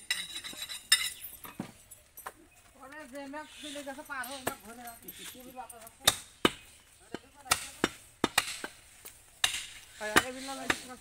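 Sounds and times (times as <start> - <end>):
cleaver chopping meat on wood: 6.0 - 8.8.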